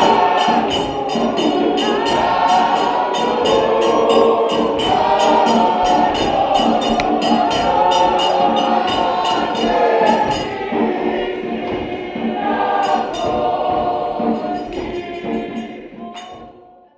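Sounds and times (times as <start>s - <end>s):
sharp percussive hits: 0.0s - 10.8s, 12.7s - 16.6s
choir singing a hymn: 0.0s - 16.9s.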